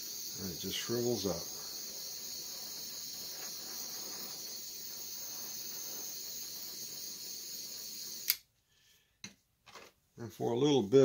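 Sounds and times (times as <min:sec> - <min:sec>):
torch flame hissing: 0:00.0 - 0:08.4.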